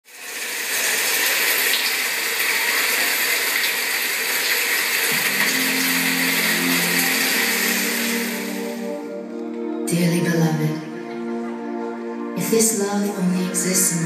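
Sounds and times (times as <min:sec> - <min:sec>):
rushing water: 0:00.0 - 0:09.0
low sustained music notes: 0:05.1 - 0:14.0.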